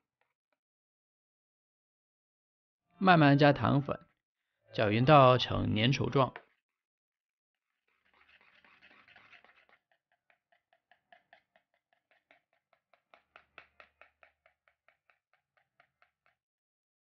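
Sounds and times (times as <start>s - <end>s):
whisk beating cream in a bowl: 8.4s - 16.4s.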